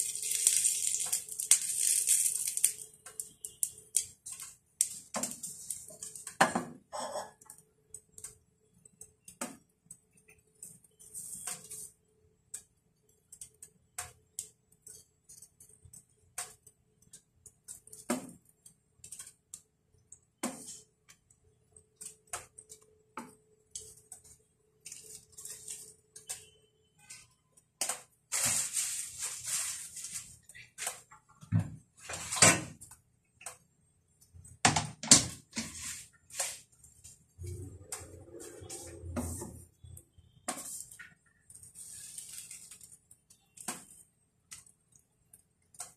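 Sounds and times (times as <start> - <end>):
utensils tapping a frying pan: 0.0 - 11.9
scraping hiss: 28.3 - 31.0.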